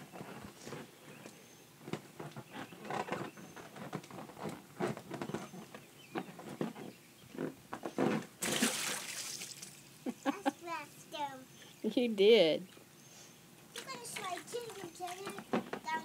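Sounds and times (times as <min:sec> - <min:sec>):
knocks and squeaks on vinyl slide: 0:00.0 - 0:08.4, 0:14.5 - 0:16.0
splash into paddling pool: 0:08.4 - 0:09.8.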